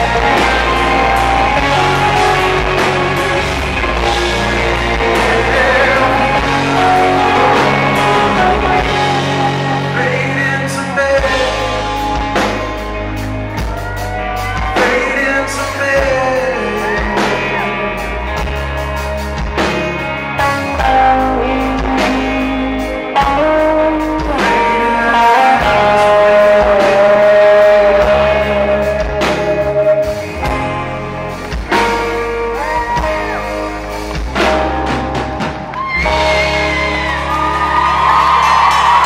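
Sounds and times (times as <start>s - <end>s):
man singing long notes: 0.0s - 12.5s, 14.6s - 18.2s, 20.4s - 30.2s
electric guitar: 0.0s - 39.0s.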